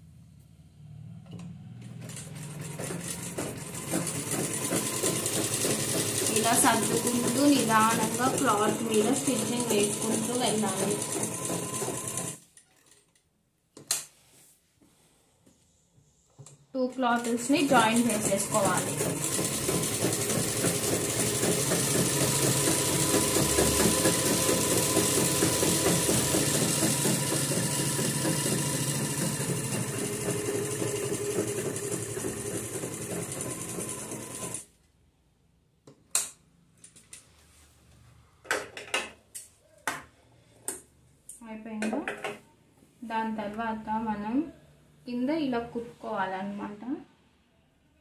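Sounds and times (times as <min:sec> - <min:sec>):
sewing machine running: 0:01.8 - 0:12.4, 0:17.2 - 0:34.7.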